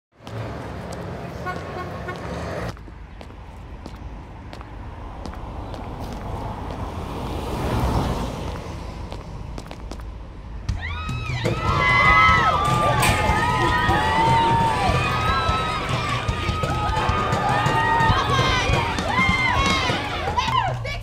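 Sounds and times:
traffic rumble: 0:00.1 - 0:21.0
vehicle passing: 0:00.2 - 0:10.6.

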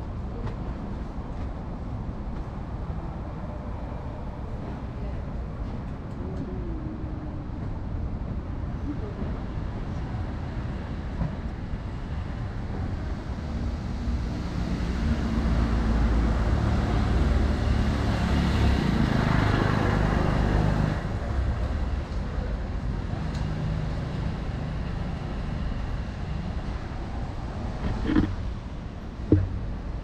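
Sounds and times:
faint traffic hum: 0:00.0 - 0:30.0
vehicle passing rumble: 0:26.6 - 0:30.0.

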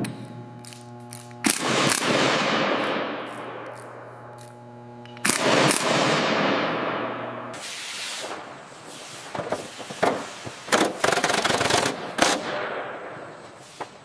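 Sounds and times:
pneumatic rivet guns hammering: 0:00.0 - 0:06.6, 0:09.3 - 0:12.7.

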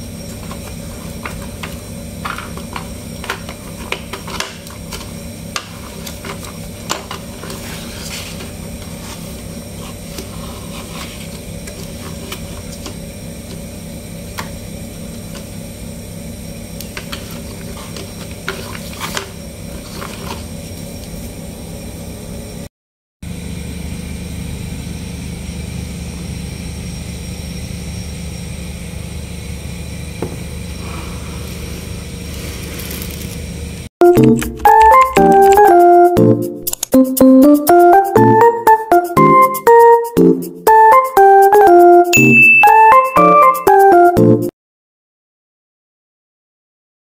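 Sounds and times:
steady background hum: 0:00.0 - 0:22.7.

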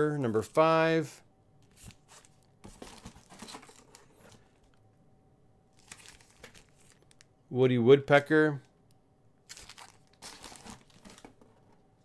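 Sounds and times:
plastic bags crinkling: 0:05.8 - 0:07.3, 0:09.4 - 0:11.5.

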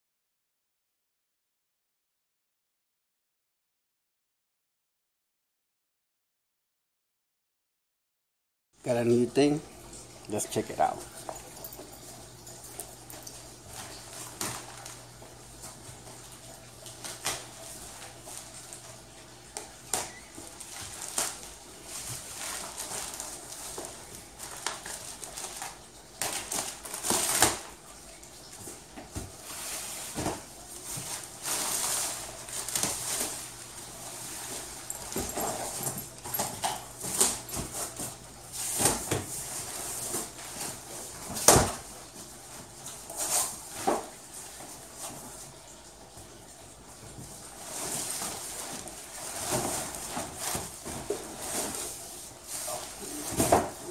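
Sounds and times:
cardboard and plastic wrap rustling: 0:12.8 - 0:45.6, 0:46.9 - 0:53.9.

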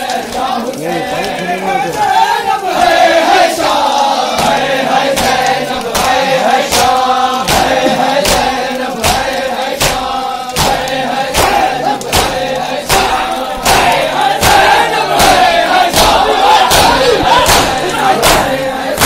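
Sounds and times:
men chanting in unison: 0:00.0 - 0:19.0
chest beating slaps: 0:04.3 - 0:19.0.

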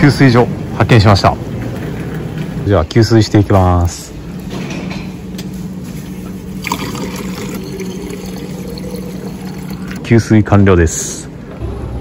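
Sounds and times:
steady low hum: 0:00.0 - 0:10.3
water pouring into plastic bottle: 0:06.6 - 0:10.0.

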